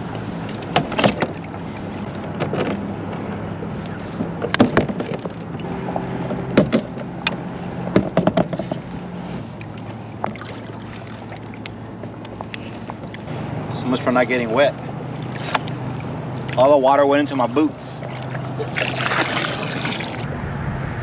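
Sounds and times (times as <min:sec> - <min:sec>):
low motor hum: 0:00.0 - 0:21.0
paddle knocking on plastic hull: 0:04.2 - 0:08.9.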